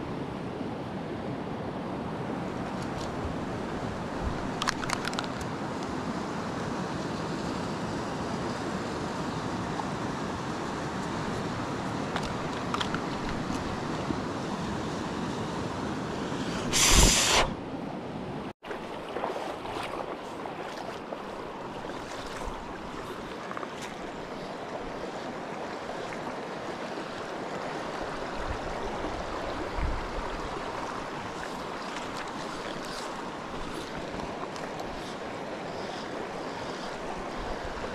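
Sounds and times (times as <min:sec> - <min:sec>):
short loud hiss: 0:16.5 - 0:17.6
stream running over stones: 0:18.6 - 0:37.9.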